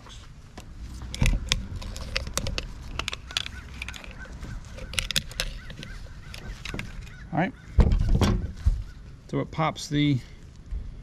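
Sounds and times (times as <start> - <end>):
sharp metal clicks and scrapes: 1.0 - 7.2.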